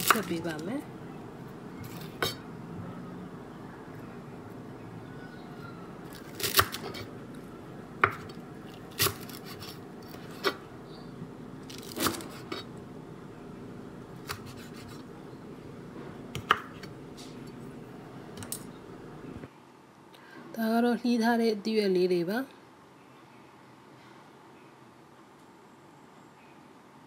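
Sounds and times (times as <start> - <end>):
steady low hum: 0.0 - 20.4.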